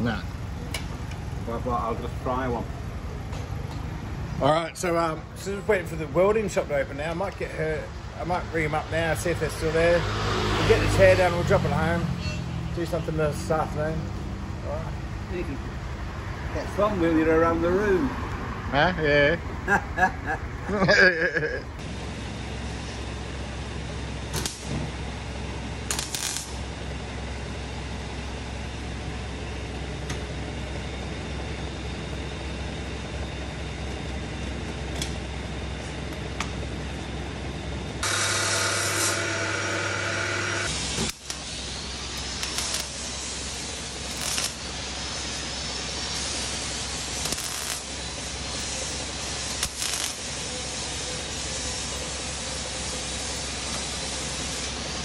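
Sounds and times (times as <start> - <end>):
whirring machine: 21.8 - 55.0
welding arc crackling and hissing: 24.4 - 24.7, 25.9 - 26.6, 38.0 - 55.0.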